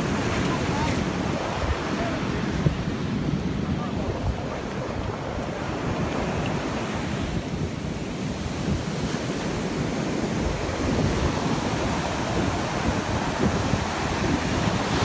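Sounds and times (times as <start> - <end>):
ocean surf breaking: 0.0 - 15.0
wind buffeting microphone: 0.0 - 15.0.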